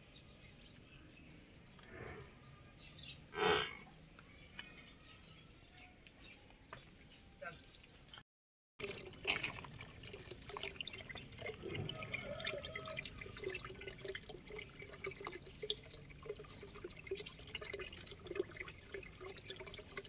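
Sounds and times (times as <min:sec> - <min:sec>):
cow drinking: 0:08.8 - 0:20.0
water pouring and splashing: 0:08.8 - 0:20.0.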